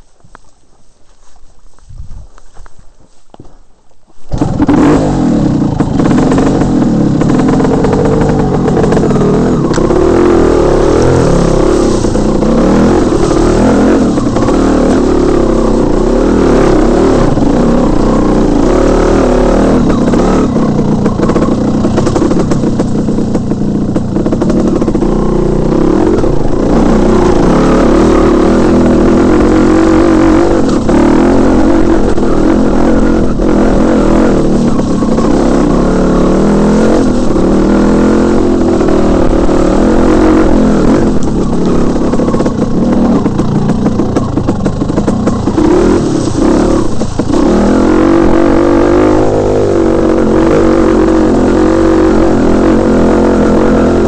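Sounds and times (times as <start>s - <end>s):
dirt bike engine revving: 4.3s - 54.0s.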